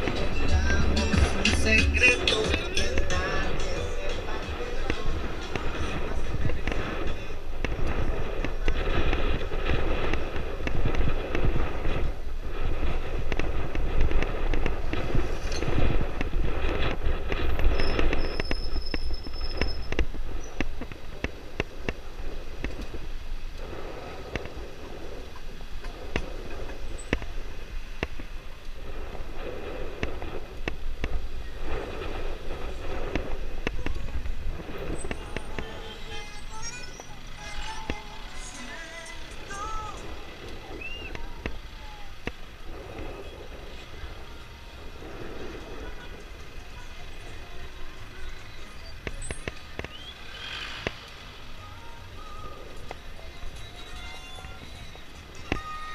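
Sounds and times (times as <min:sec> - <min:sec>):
engine crackles: 0:00.0 - 0:55.9
wind on microphone: 0:00.0 - 0:55.9.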